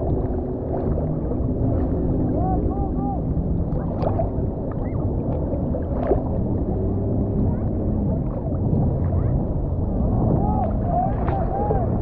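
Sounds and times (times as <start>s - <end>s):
sea water sloshing: 0.0s - 12.0s
water splashes: 0.0s - 12.0s.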